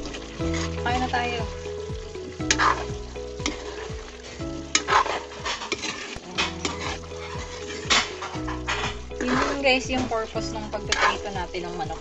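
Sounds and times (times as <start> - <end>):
background music: 0.0 - 12.0
utensil scraping in pot: 4.8 - 10.2.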